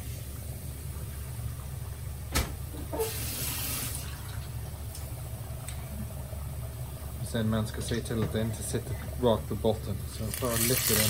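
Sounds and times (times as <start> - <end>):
low steady hum: 0.0 - 11.0
fish deep-frying in oil: 9.6 - 11.0.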